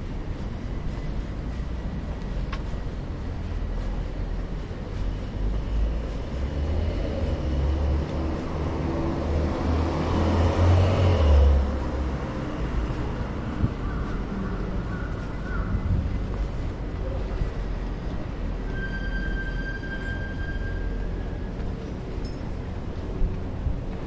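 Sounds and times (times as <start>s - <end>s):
wind rumble on microphone: 0.0s - 18.8s, 21.1s - 24.0s
car passing by: 5.7s - 13.7s.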